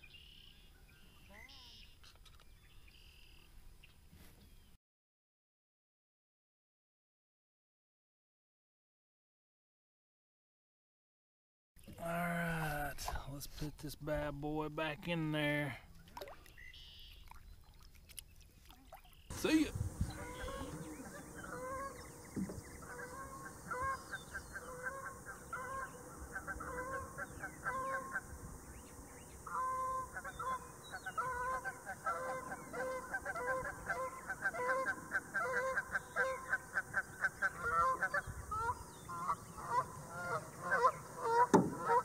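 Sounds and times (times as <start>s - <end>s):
geese honking: 19.3s - 42.0s
sharp knock: 41.5s - 41.8s.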